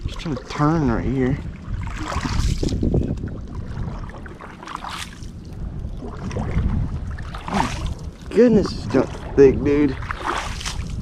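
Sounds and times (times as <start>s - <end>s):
kayak paddle splashing: 0.0s - 11.0s
low rumble: 0.0s - 11.0s
sharp splash or scrape: 1.8s - 2.9s, 4.4s - 5.3s, 7.2s - 8.2s, 9.9s - 11.0s.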